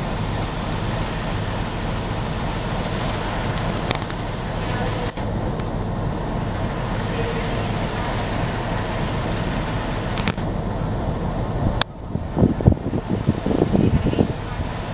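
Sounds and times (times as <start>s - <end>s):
diesel locomotive idling: 0.0s - 14.9s
wind buffeting microphone: 7.6s - 14.9s.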